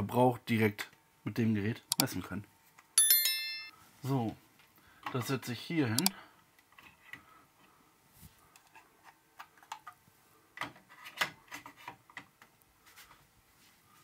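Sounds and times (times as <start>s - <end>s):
light clicks and taps: 6.0s - 6.2s.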